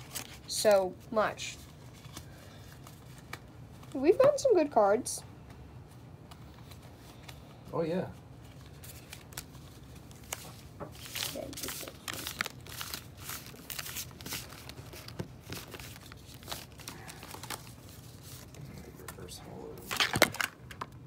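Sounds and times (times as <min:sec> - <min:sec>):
packaging crinkling and rustling: 0:00.0 - 0:00.5, 0:08.4 - 0:21.0
wrapper tearing: 0:08.6 - 0:18.6.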